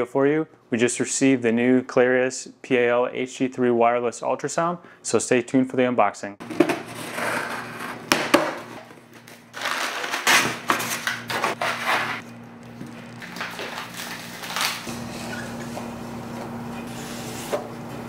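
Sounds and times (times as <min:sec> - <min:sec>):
packing tape being slit: 0:06.8 - 0:12.4, 0:13.1 - 0:14.9
cardboard and paper rustling: 0:08.8 - 0:14.9.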